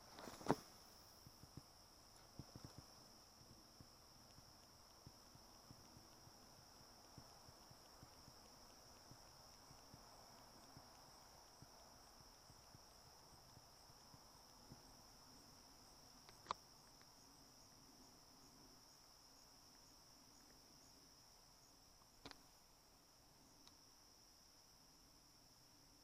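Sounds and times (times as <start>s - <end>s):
insects trilling: 0.0s - 26.0s
sharp clicks: 1.4s - 17.2s.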